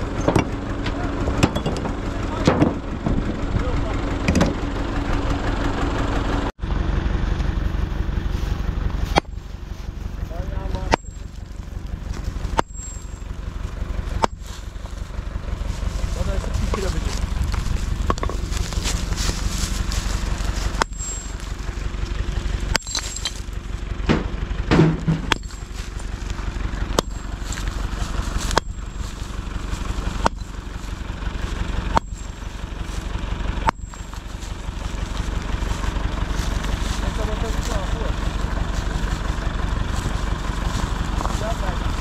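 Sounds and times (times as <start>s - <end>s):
engine rumble: 0.0s - 42.0s
sledgehammer striking stone: 10.8s - 11.2s, 12.5s - 13.0s, 22.7s - 23.4s, 24.1s - 25.6s.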